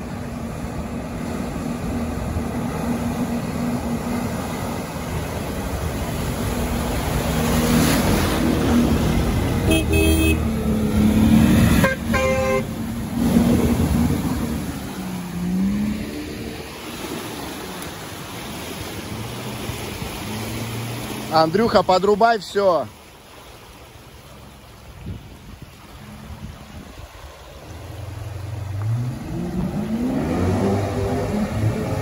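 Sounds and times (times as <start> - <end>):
horn toot: 9.6 - 10.5, 11.7 - 12.8.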